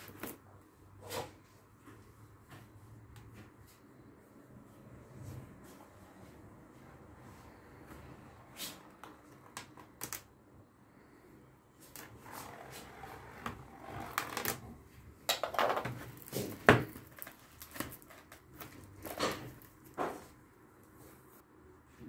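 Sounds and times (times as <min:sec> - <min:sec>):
cardboard and plastic rustling: 0:11.8 - 0:21.4
cardboard knock: 0:15.6 - 0:17.2.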